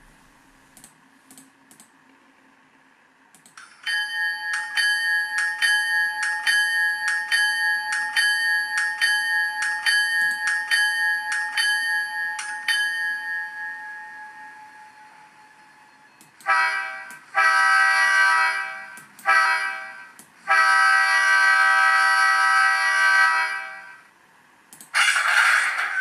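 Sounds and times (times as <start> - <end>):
locomotive bell ringing: 3.8 - 16.1.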